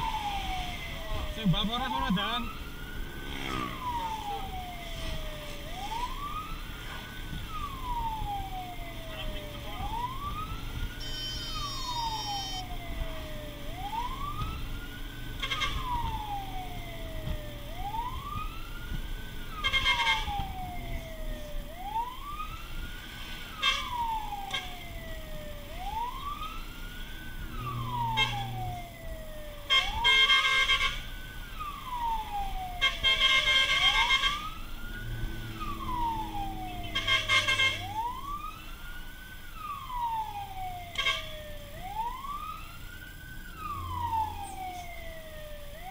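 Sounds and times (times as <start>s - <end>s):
fire truck siren wailing: 0.0s - 45.9s
horn blasts: 11.0s - 12.6s, 15.4s - 16.0s, 19.6s - 20.4s, 29.7s - 31.0s, 32.8s - 34.5s, 36.7s - 38.1s.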